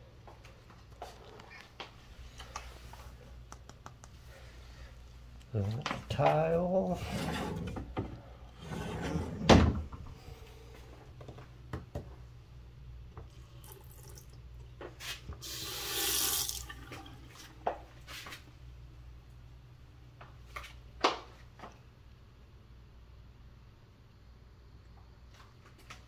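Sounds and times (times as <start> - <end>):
faucet running into sink: 13.6 - 14.4, 15.4 - 17.3.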